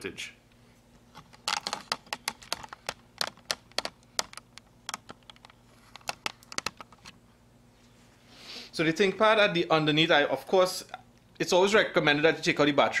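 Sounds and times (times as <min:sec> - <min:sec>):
hands clicking hard plastic: 0:01.3 - 0:07.1.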